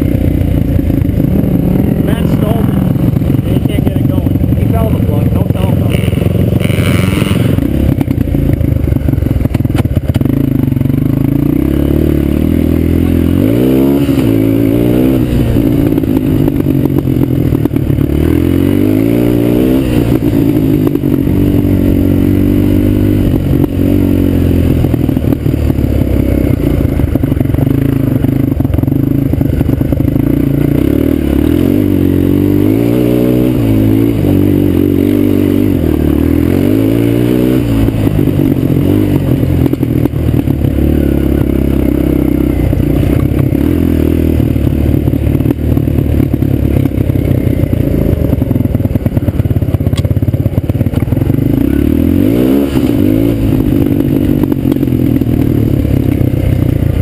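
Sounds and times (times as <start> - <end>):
quad engine revving: 0.0 - 57.0.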